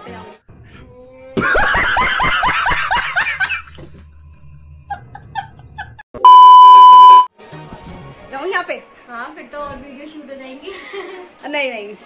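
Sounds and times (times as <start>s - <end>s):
man laughing hard: 1.4s - 3.8s
electronic bleep tone: 6.2s - 7.3s.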